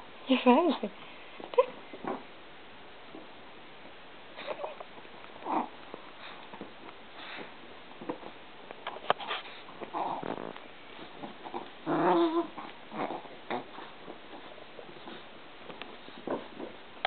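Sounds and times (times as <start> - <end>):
small dog growling: 5.4 - 6.4, 9.7 - 15.3, 16.0 - 16.8.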